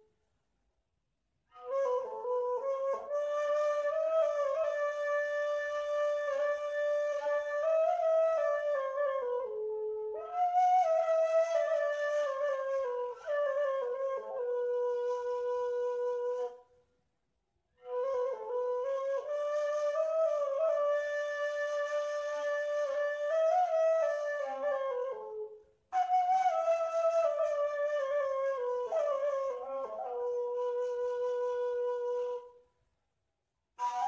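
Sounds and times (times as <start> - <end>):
reed flute melody: 1.5 - 16.8, 17.8 - 32.6, 33.8 - 34.0.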